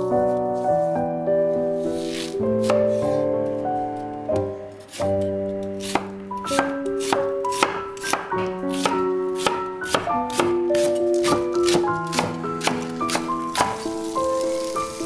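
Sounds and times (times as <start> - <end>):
background piano music: 0.0 - 15.0
knife chopping on cutting board: 2.0 - 3.2, 4.4 - 13.8.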